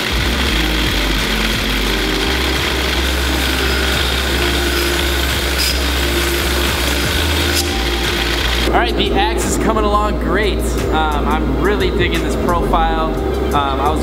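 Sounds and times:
belt grinder grinding metal: 0.0 - 8.7.

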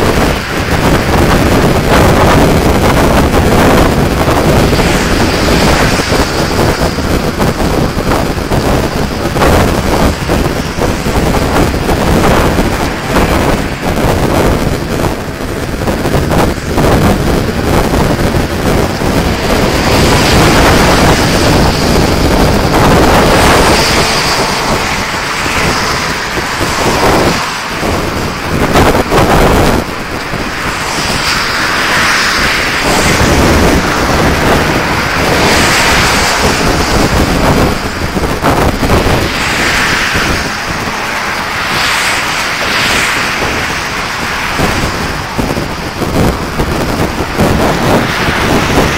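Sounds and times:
motorway traffic rushing: 0.0 - 48.9
wind buffeting microphone: 0.0 - 48.9.

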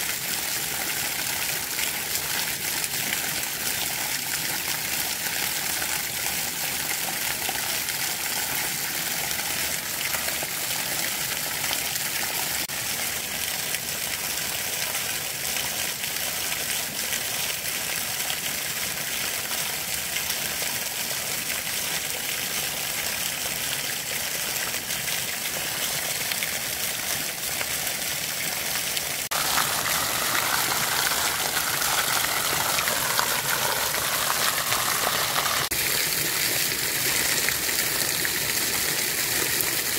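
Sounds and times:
running water: 0.0 - 39.9
water gushing onto rock: 24.8 - 39.9.

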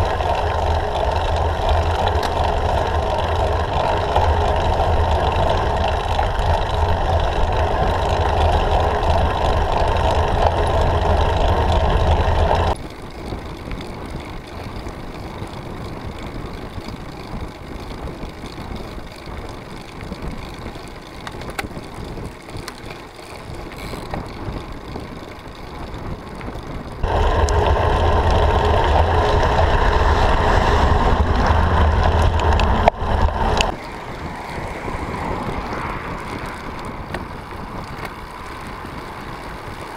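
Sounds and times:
bicycle road rumble: 0.0 - 39.9
wind noise on microphone: 0.0 - 39.9.

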